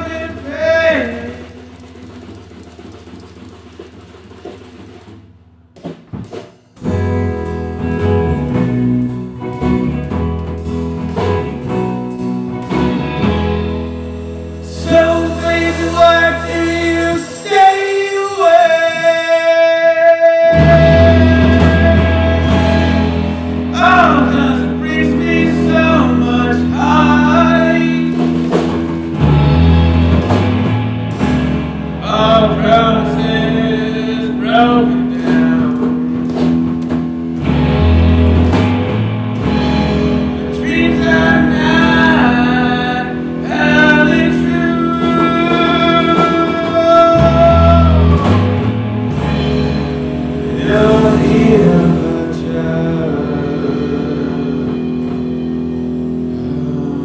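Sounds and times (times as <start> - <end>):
person singing: 0.0 - 1.8, 14.6 - 28.7, 32.0 - 36.4, 40.4 - 48.7, 50.4 - 57.0
guitar: 0.0 - 57.0
live band playing: 0.0 - 57.0.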